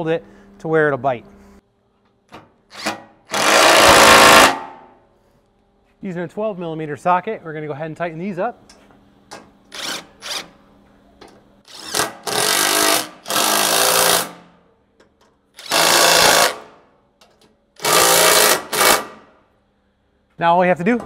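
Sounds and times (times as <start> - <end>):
impact driver hammering: 2.7 - 4.9, 15.6 - 16.7, 17.8 - 19.3.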